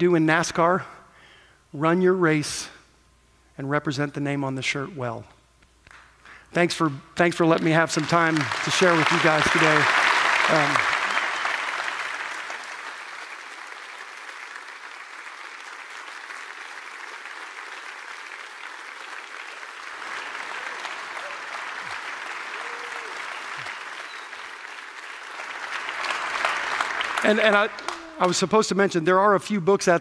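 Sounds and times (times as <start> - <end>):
audience applauding: 7.4 - 28.8.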